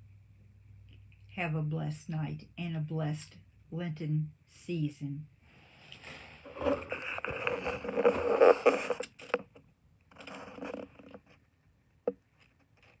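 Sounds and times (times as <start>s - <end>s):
phone handling rubbing: 6.4s - 9.6s.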